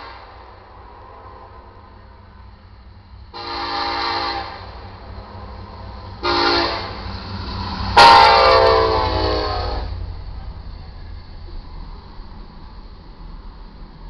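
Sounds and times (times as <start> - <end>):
low rumble of train: 0.0 - 14.0
locomotive air horn blasts: 3.3 - 4.8, 6.2 - 7.0, 8.0 - 10.0.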